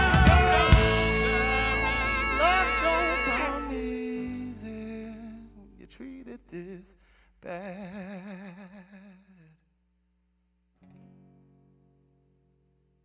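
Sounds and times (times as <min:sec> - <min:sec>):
band final chord ringing: 0:00.0 - 0:04.8
held note with wide vibrato: 0:00.0 - 0:04.9.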